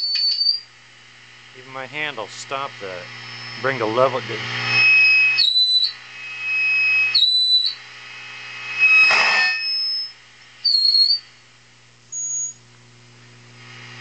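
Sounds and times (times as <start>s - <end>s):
amp feedback whistles: 0.0s - 0.7s, 2.5s - 11.4s, 12.1s - 12.7s
steady mains hum: 0.0s - 14.0s.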